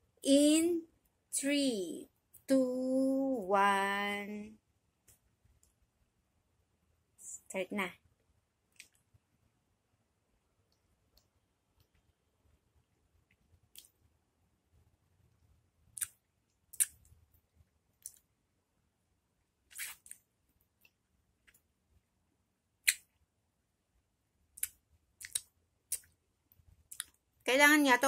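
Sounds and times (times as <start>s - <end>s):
mouth smacks and slurps: 16.0s - 17.0s, 19.7s - 20.2s, 24.6s - 26.1s.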